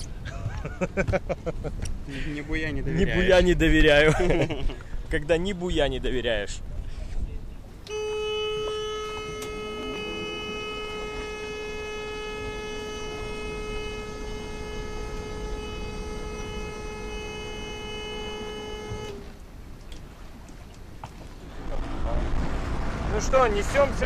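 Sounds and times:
steady tone: 7.9 - 19.3.

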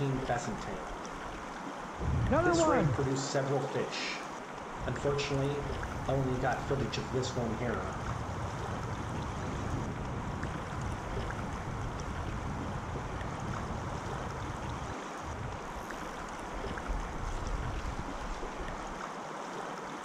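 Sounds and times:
shallow river water flowing: 0.0 - 20.0.

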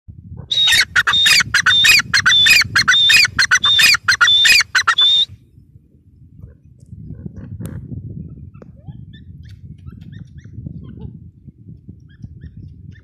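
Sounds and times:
francolin calling: 0.5 - 5.3.

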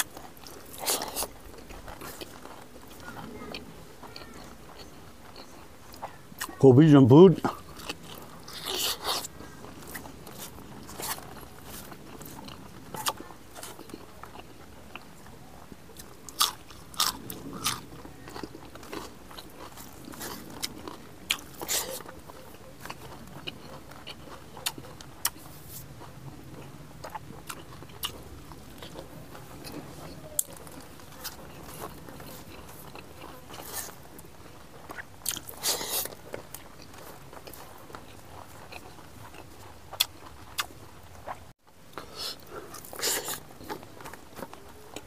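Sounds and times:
person chewing food crunchily: 0.0 - 45.0.

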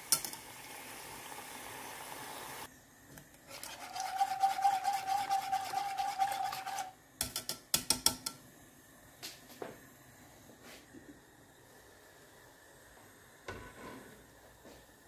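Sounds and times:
whisk scraping a saucepan: 3.5 - 7.0.

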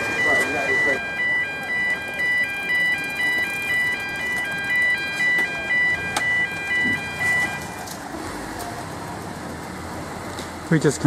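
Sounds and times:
two-tone warning alarm: 0.0 - 8.0.

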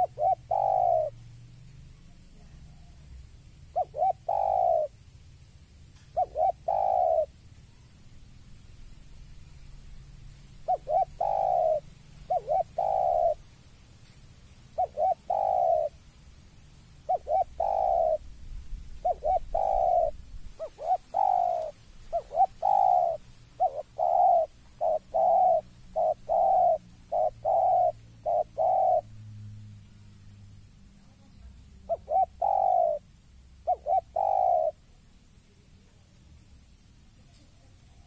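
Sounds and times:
dove cooing: 0.0 - 1.3, 2.0 - 5.0, 6.0 - 7.5, 10.6 - 13.4, 14.7 - 16.0, 17.0 - 18.3, 19.0 - 29.2, 31.0 - 35.6.

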